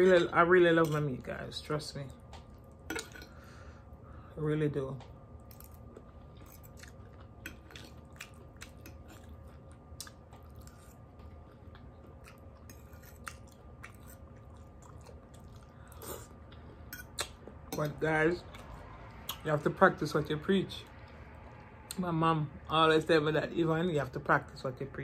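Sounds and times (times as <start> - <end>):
faint steady hum: 0.0 - 25.0
person chewing food: 5.4 - 17.7.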